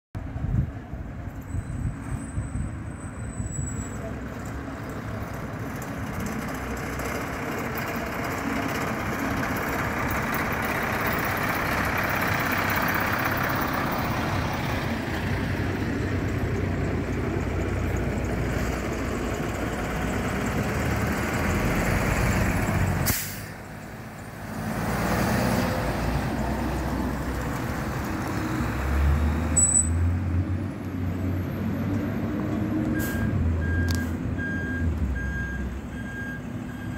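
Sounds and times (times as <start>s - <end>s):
fire engines diesel engines running: 0.2s - 36.9s
air brakes hissing: 23.0s - 23.6s, 33.0s - 33.4s.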